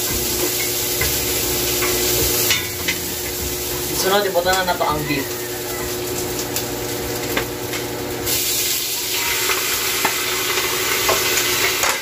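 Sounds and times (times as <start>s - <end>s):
meat sizzling in hot oil: 0.0s - 12.0s
spoon and plate clinking on pot: 1.8s - 3.4s.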